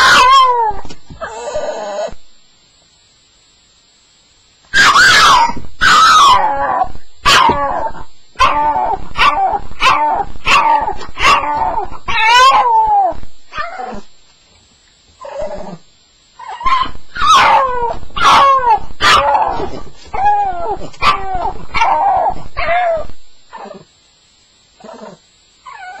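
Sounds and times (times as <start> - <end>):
dog whining and howling: 0.0 - 2.2, 4.8 - 14.1, 15.2 - 15.8, 16.4 - 23.9, 24.8 - 26.0
dog whimpering: 0.1 - 2.2, 15.2 - 15.8, 24.8 - 26.0.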